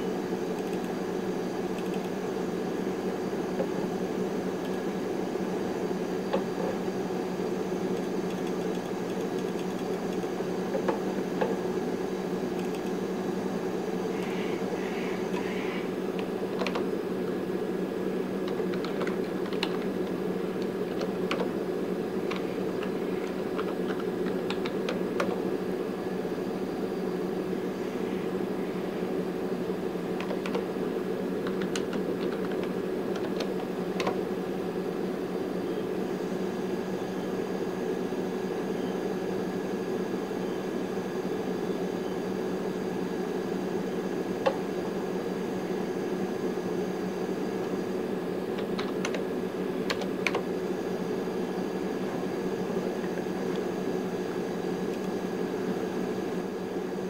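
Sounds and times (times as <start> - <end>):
computer fans humming: 0.0 - 57.0
computer keyboard typing: 1.7 - 2.2, 7.9 - 10.9, 12.6 - 13.0, 16.6 - 16.9, 18.4 - 21.6, 22.2 - 25.4, 30.2 - 30.7, 31.4 - 34.2, 48.6 - 49.2, 49.8 - 50.4.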